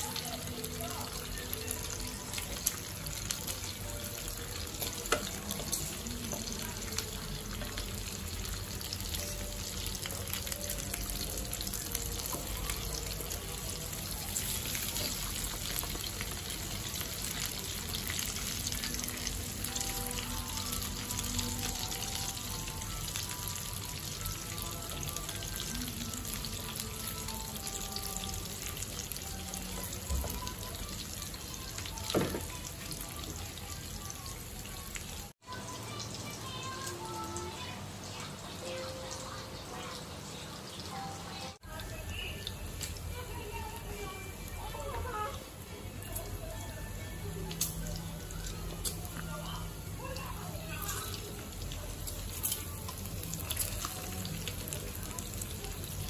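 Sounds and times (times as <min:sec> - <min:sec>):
meat sizzling on grill pan: 0:00.0 - 0:35.0, 0:46.1 - 0:56.0
faint background music: 0:00.0 - 0:56.0
metal tongs clicking on pan: 0:52.3 - 0:53.9.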